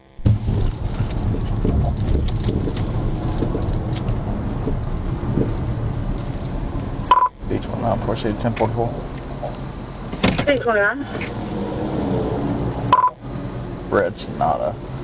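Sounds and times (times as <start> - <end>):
ticks and knocks: 0.2 - 7.3
tyres and engine rumble: 0.2 - 15.0.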